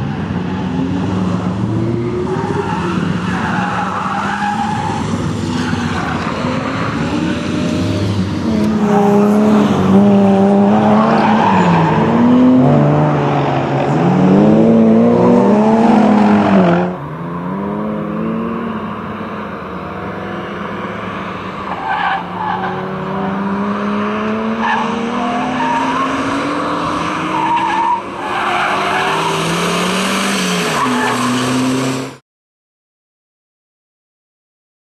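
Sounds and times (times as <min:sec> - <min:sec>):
car engine revving hard: 0:05.0 - 0:21.6, 0:22.4 - 0:27.6, 0:28.4 - 0:32.2.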